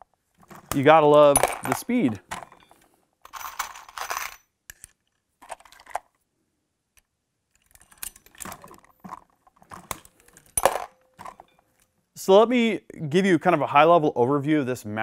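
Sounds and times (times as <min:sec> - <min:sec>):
reloading press clicking and clinking: 0:07.6 - 0:11.6.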